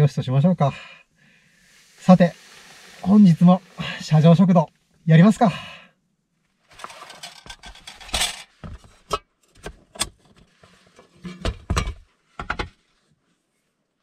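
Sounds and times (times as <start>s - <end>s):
rustling: 6.4s - 9.1s
metal stand clicking and knocking: 6.8s - 10.4s.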